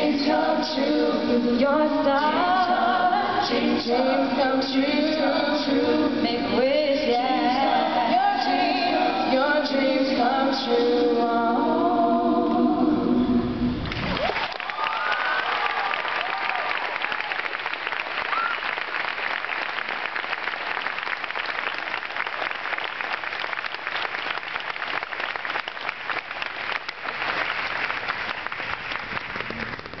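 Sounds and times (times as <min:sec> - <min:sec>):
audience applauding: 0:13.8 - 0:30.0
audience whooping: 0:13.9 - 0:20.0.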